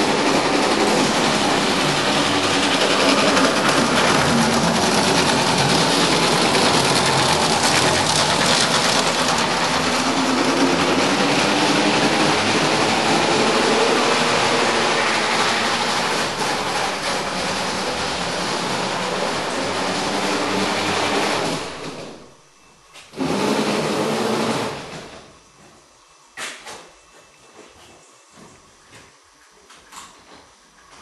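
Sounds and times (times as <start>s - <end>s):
model tram motor whirring: 0.0s - 22.3s.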